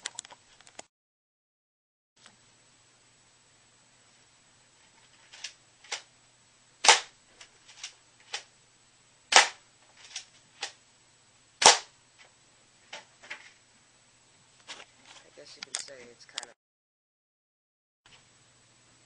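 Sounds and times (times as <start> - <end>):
airsoft shotgun firing: 6.8 - 7.1, 9.3 - 9.6, 11.6 - 11.9.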